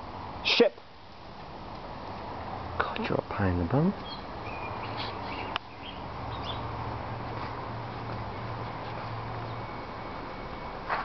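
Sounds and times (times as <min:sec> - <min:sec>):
steady low hum: 0:00.0 - 0:11.0
faint bird chirps: 0:04.0 - 0:06.7.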